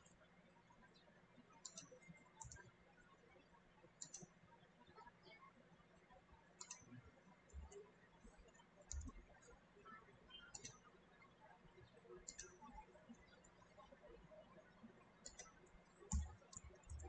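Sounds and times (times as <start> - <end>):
computer mouse clicks: 0.9 - 3.1, 3.9 - 4.4, 6.6 - 14.0, 14.9 - 17.0.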